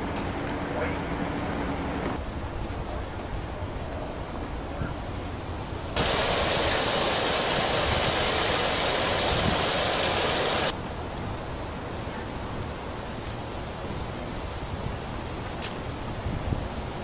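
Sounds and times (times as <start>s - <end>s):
outdoor background noise: 0.0s - 17.0s
running water rushing: 5.9s - 10.8s.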